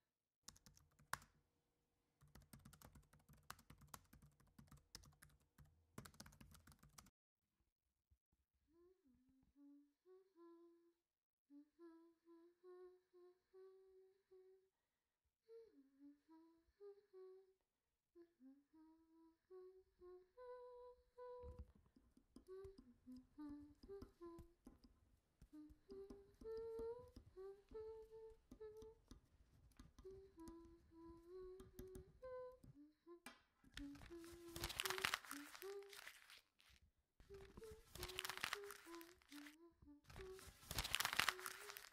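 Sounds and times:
person humming a gentle tune: 0:08.7 - 0:14.7, 0:15.4 - 0:29.2, 0:29.8 - 0:36.4, 0:37.2 - 0:41.9.

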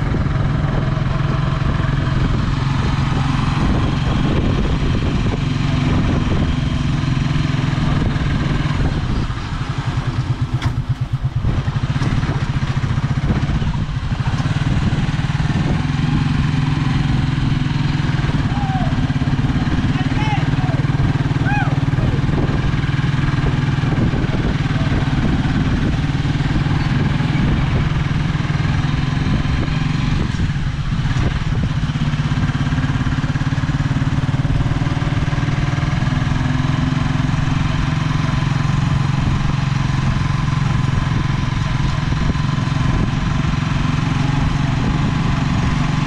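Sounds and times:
motorcycle engine running: 0:00.0 - 0:46.0
road and wind noise: 0:00.0 - 0:46.0.

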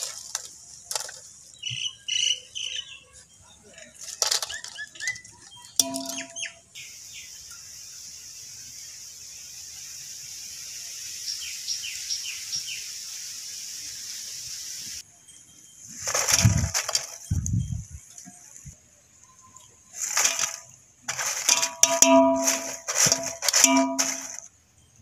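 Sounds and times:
potato chips crunching in metal pot: 0:00.0 - 0:01.2, 0:04.0 - 0:05.2, 0:16.1 - 0:17.2, 0:20.0 - 0:24.4
birds chirping: 0:04.2 - 0:07.6
steady high hiss: 0:06.8 - 0:16.0.

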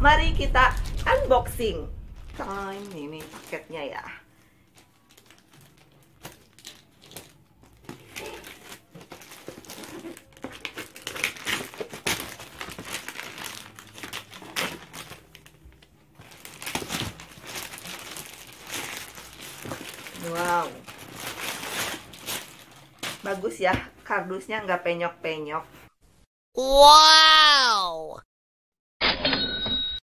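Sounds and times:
plastic wrapping crinkling and tearing: 0:00.7 - 0:01.5, 0:02.1 - 0:23.5.

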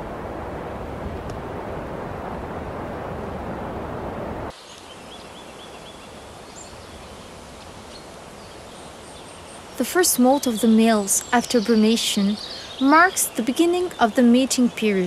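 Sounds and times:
wind rushing over microphone: 0:00.0 - 0:04.5.

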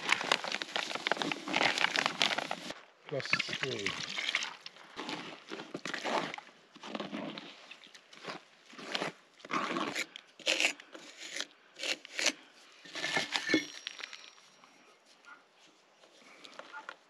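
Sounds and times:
rough scrapes of wet mortar: 0:04.9 - 0:13.8.

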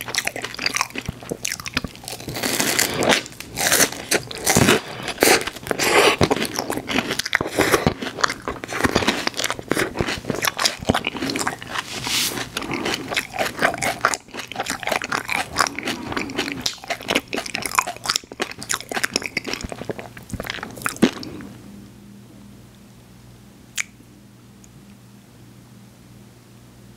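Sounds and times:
wet chewing and smacking: 0:00.0 - 0:21.5.

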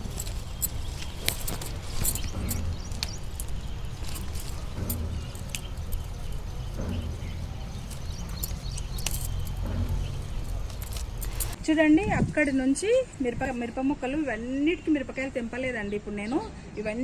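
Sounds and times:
leaves rustling: 0:00.0 - 0:11.6.

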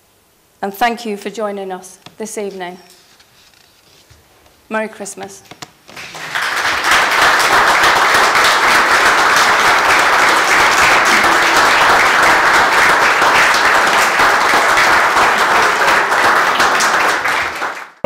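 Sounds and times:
audience applauding: 0:05.9 - 0:18.0.

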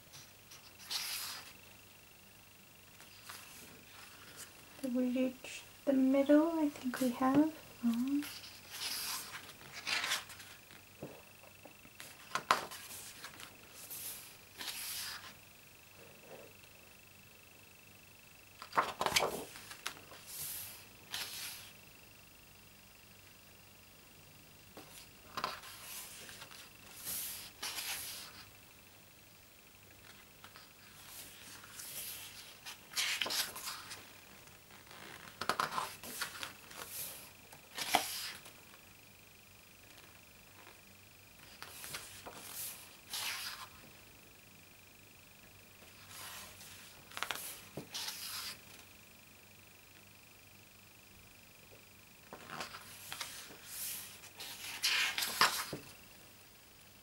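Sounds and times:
paper page crackling: 0:00.6 - 0:01.5, 0:08.2 - 0:10.6, 0:18.6 - 0:21.7, 0:25.3 - 0:28.4, 0:30.0 - 0:34.1, 0:34.7 - 0:38.5, 0:41.5 - 0:43.7, 0:46.1 - 0:48.6, 0:52.3 - 0:55.8
page turning swishes: 0:00.8 - 0:01.5, 0:08.2 - 0:10.6, 0:12.0 - 0:15.3, 0:18.6 - 0:21.7, 0:25.3 - 0:28.4, 0:30.4 - 0:34.0, 0:34.8 - 0:38.5, 0:41.5 - 0:43.7, 0:46.0 - 0:48.6, 0:52.3 - 0:55.8.

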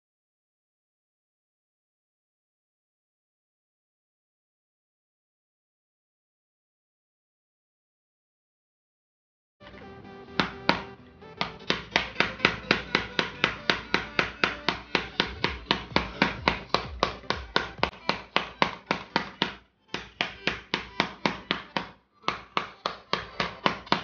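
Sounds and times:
mallet tapping on plastic case: 0:10.4 - 0:24.0.

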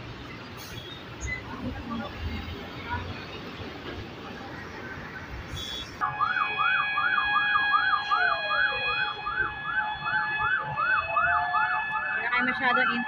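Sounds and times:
street noise: 0:00.0 - 0:13.0
siren yelp: 0:06.0 - 0:13.0
slower siren wail: 0:06.0 - 0:13.0.

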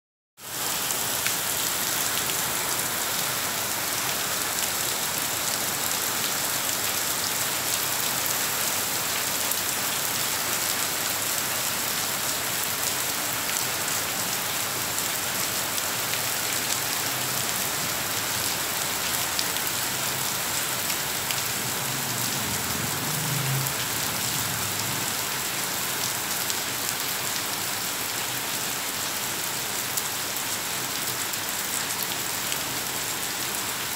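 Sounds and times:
rain on stone paving: 0:00.4 - 0:33.9.

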